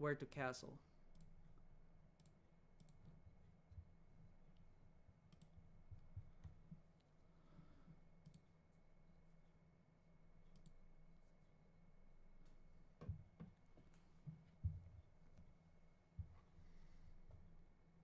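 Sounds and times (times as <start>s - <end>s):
computer mouse clicks: 1.1s - 1.4s, 2.2s - 3.2s, 5.3s - 5.6s, 8.2s - 8.5s, 10.5s - 10.8s.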